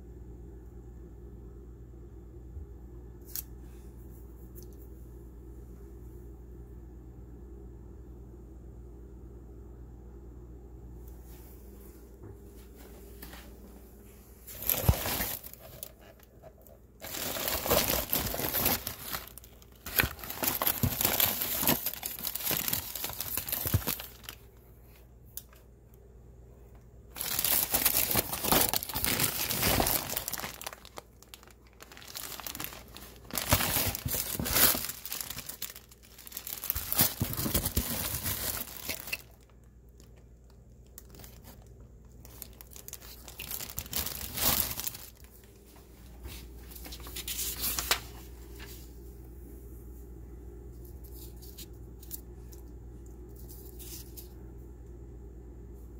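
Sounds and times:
plastic packaging crinkling: 14.4 - 25.6, 27.1 - 48.8.

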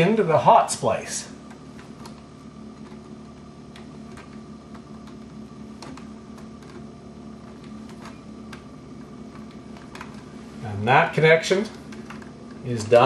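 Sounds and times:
steady low hum: 0.0 - 13.0
copper wires clicking: 1.4 - 10.3.

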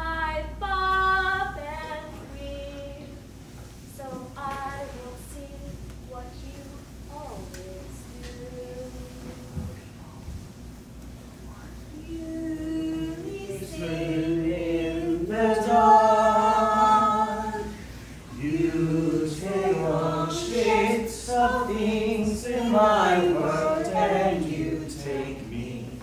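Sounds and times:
unaccompanied voices singing: 11.9 - 26.0.

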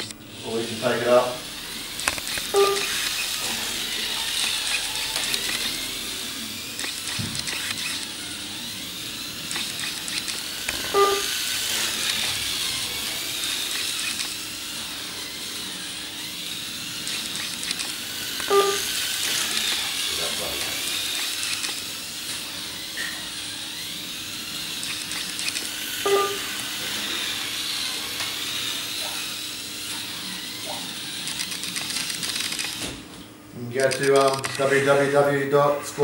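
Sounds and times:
small electric motor whining: 0.0 - 36.0
short beep: 2.6 - 2.9, 11.0 - 11.3, 18.5 - 18.9, 26.1 - 26.5.

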